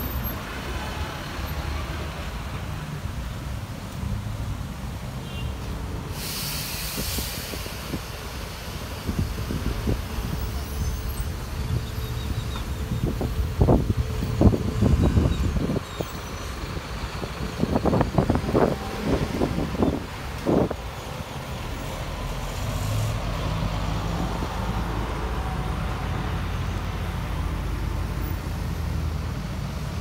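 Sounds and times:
vehicle engines rumbling: 0.0 - 30.0
air brake hiss: 6.1 - 8.4.

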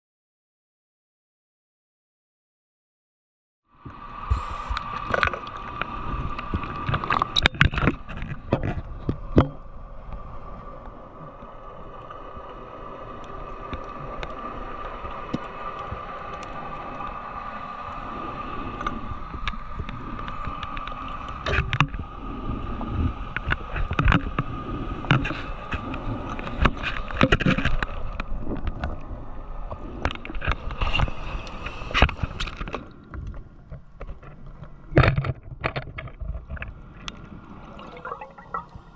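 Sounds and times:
steady high hum: 4.0 - 5.3
bubbles gurgling underwater: 36.8 - 38.9.

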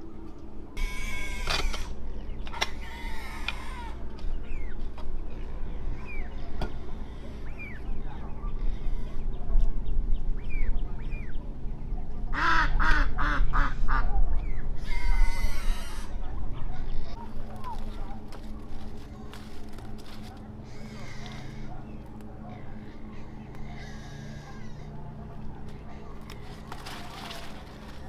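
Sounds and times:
steady low rumble: 0.0 - 28.0
small birds chirping: 0.8 - 12.2, 14.4 - 28.0
ducks quacking: 12.3 - 14.2, 14.9 - 28.0.

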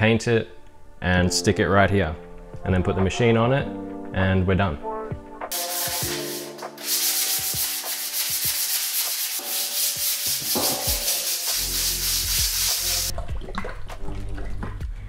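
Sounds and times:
sandpaper rubbing on steel: 5.5 - 13.1.

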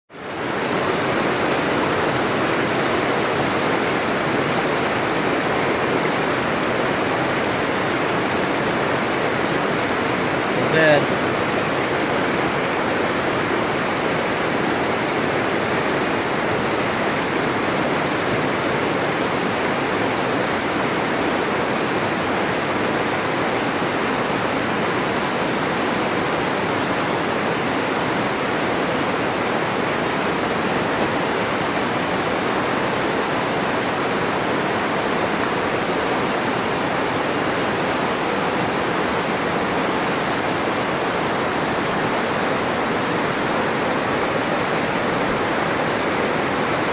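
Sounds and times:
river rapids rushing: 0.1 - 46.9.

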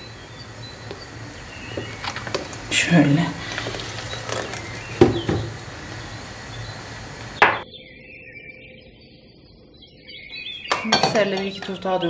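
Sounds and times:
low steady hiss: 0.0 - 7.6
mixer beaters knocking glass bowl: 5.0 - 5.6, 10.7 - 11.9.

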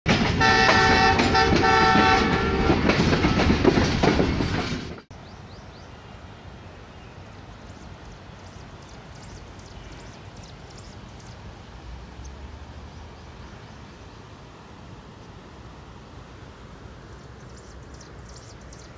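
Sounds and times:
moving train rumbling and clattering: 0.1 - 5.1
train horn blasts: 0.3 - 3.5.

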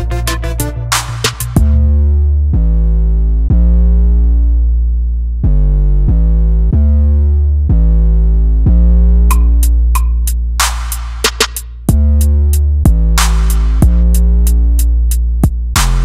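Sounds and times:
synthesizer chords over deep bass: 0.0 - 16.0
drum hits: 0.9 - 1.8, 9.3 - 12.1.

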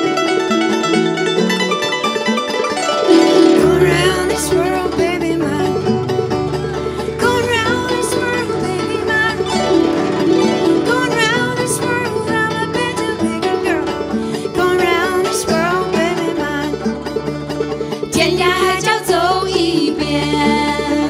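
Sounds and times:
banjo: 0.0 - 21.0
guzheng: 0.0 - 21.0
woman singing: 3.3 - 6.1, 7.0 - 9.8, 10.6 - 17.0, 17.9 - 21.0.

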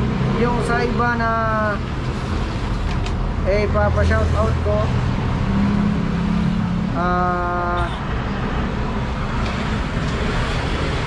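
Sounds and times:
road traffic rumbling: 0.0 - 11.0
vehicle engine passing: 3.8 - 11.0.

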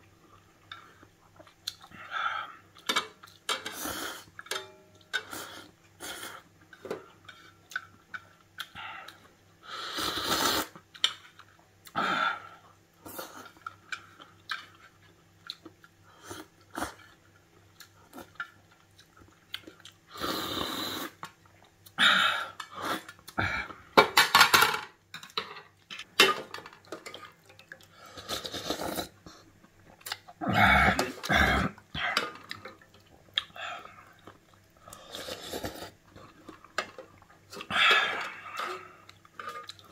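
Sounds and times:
chewing: 13.1 - 22.0, 32.1 - 39.9
noodles slurped: 27.8 - 29.2.

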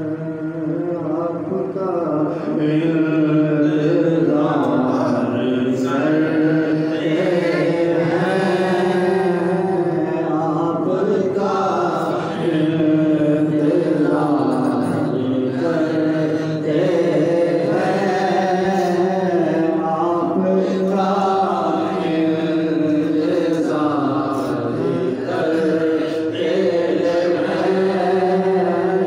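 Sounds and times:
man singing into a microphone: 0.0 - 29.0.

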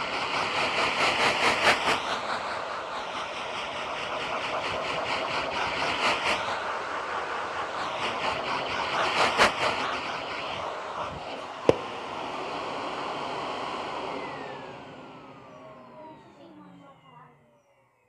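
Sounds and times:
vacuum cleaner running: 0.0 - 18.0
motor winding down whine: 11.2 - 18.0
vacuum click: 11.6 - 12.6.

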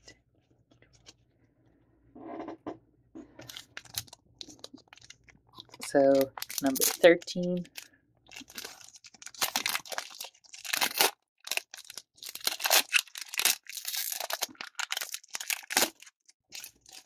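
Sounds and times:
foil wrapper tearing and crinkling: 3.5 - 17.0.

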